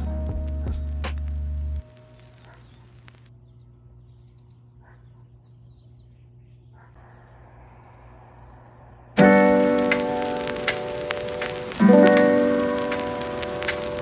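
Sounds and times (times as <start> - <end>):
bird chirps: 1.6 - 9.2
background music ringing chord: 9.2 - 14.0.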